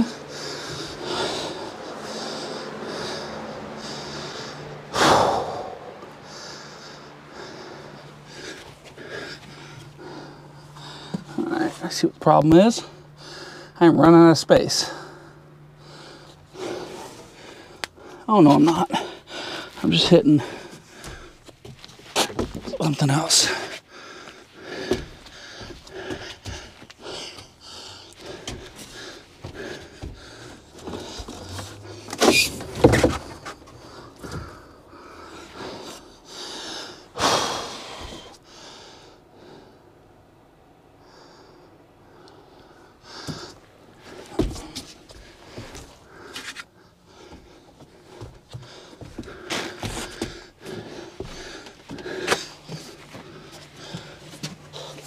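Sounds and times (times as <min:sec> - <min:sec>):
person breathing heavily: 0:00.0 - 0:13.9, 0:14.6 - 0:40.2, 0:40.9 - 0:55.0
muffled knocks and scrapes of conduit: 0:28.4 - 0:34.6.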